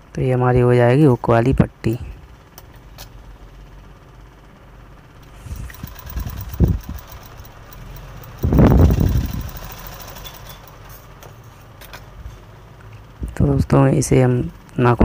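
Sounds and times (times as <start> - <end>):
sewing machine motor humming: 5.2 - 11.2
sewing machine stitching: 5.5 - 11.0.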